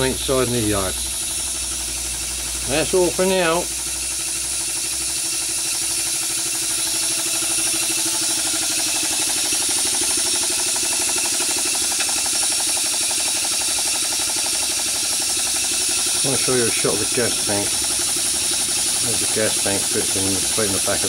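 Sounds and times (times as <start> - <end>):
steam engine exhaust chuffing: 0.0 - 21.0
steady steam hiss: 13.2 - 21.0.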